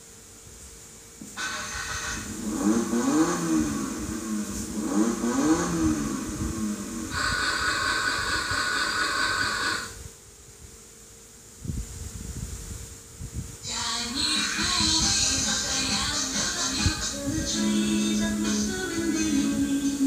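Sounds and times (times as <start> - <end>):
electronic engine revving sound effect: 1.4 - 10.0.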